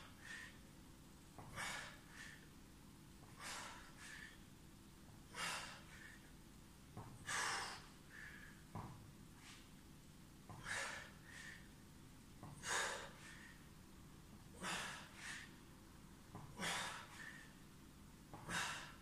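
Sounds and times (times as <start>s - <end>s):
man breathing hard: 0.0s - 0.7s, 1.4s - 2.6s, 3.2s - 4.5s, 5.3s - 6.4s, 7.0s - 8.8s, 10.5s - 11.8s, 12.4s - 13.8s, 14.5s - 15.6s, 16.4s - 17.6s, 18.4s - 19.0s.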